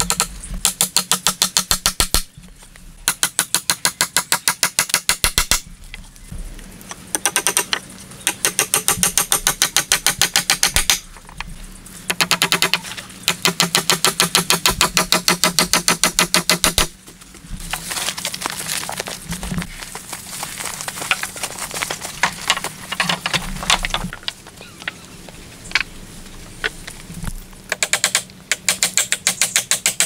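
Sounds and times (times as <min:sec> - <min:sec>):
hatchet striking wooden poles: 0:00.0 - 0:02.3, 0:03.0 - 0:05.6, 0:07.1 - 0:11.1, 0:12.1 - 0:16.9, 0:27.7 - 0:30.0
footsteps through leaf litter: 0:17.0 - 0:23.6.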